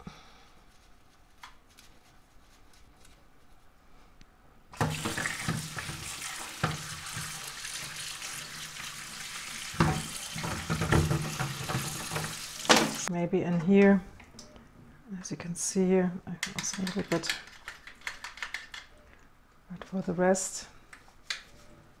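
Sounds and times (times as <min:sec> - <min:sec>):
tap water running and splashing: 0:04.8 - 0:13.1.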